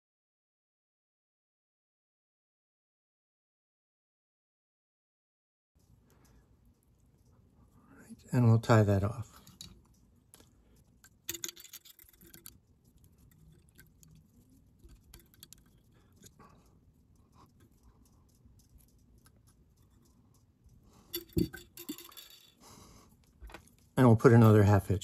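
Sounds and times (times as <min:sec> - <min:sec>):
faint ticks and rustles: 0:05.8 - 0:25.0
cluster of clicks: 0:09.2 - 0:24.0.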